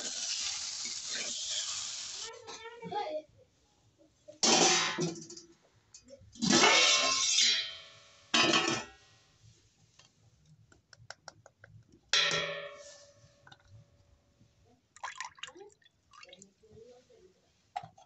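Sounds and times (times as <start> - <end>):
liquid splashing into metal pot: 14.9 - 16.5.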